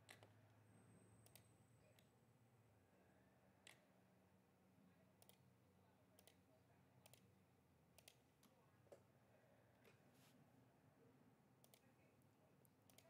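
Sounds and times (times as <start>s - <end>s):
computer mouse clicks: 0.0s - 0.3s, 1.2s - 2.1s, 3.6s - 3.8s, 5.2s - 5.4s, 6.2s - 6.4s, 7.0s - 7.3s, 8.0s - 8.2s, 11.6s - 11.9s.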